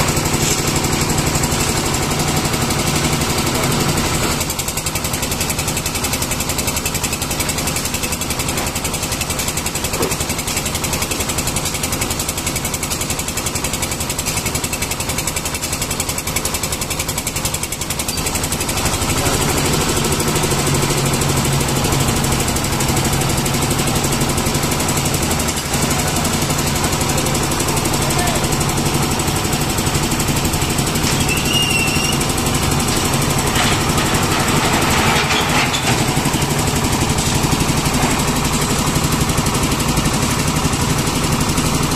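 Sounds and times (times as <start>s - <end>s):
concrete mixer engine knocking: 0.0s - 41.9s.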